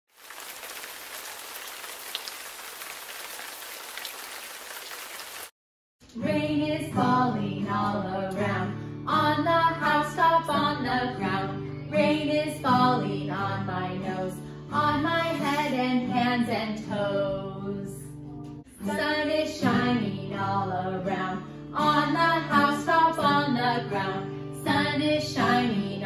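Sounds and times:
rain falling: 0.1 - 5.5
women singing: 6.2 - 18.1, 18.8 - 26.0
strummed acoustic guitar: 9.8 - 17.3.

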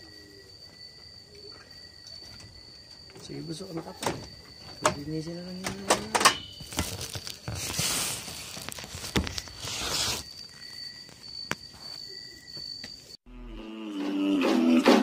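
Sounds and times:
rustling and shuffling: 2.0 - 13.1.

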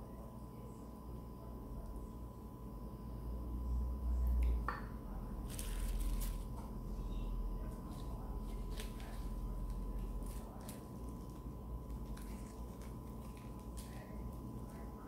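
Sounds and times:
lettuce leaf crinkling: 5.4 - 6.5, 7.8 - 14.8.

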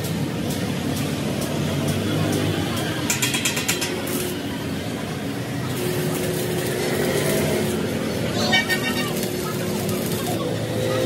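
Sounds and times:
welding arc crackling sizzle: 0.0 - 11.0.

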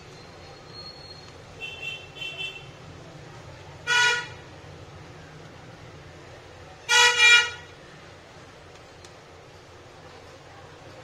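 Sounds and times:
vehicle horn honking: 3.9 - 4.4, 6.9 - 7.7.

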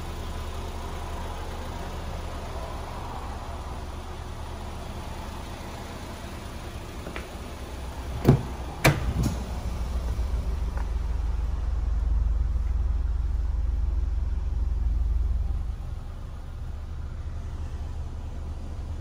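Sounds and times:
car engine idling: 0.0 - 19.0
car door latch clicks: 8.1 - 9.5
car door thunk: 8.1 - 9.6.

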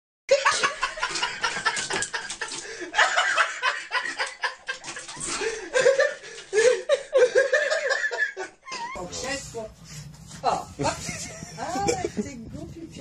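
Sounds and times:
people laughing: 0.3 - 9.0, 10.8 - 12.4.

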